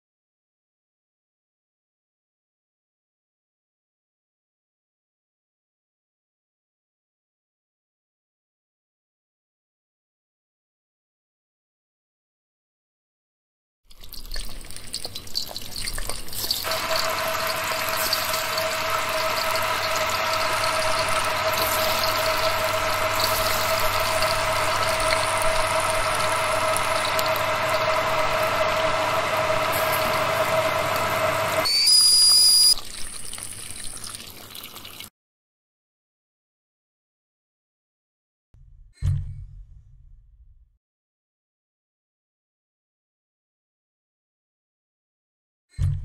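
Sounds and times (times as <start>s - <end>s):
kettle heating rushing noise: 16.6s - 31.7s
kettle whistle: 16.6s - 32.8s.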